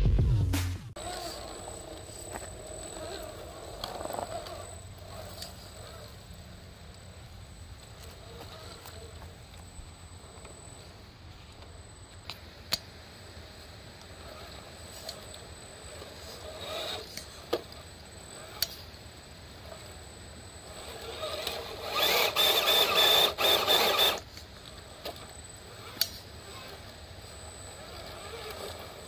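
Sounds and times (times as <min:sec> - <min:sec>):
electric motor and gears whining: 0:00.0 - 0:29.0.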